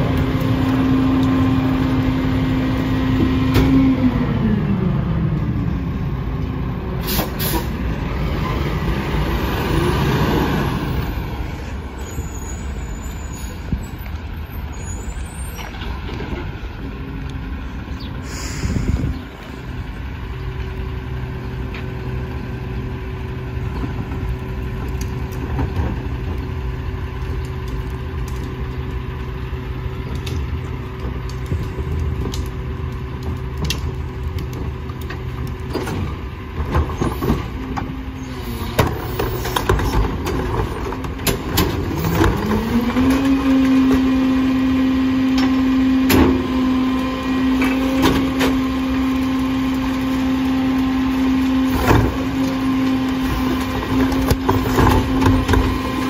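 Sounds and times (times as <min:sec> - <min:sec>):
truck engine idling: 0:10.8 - 0:42.8.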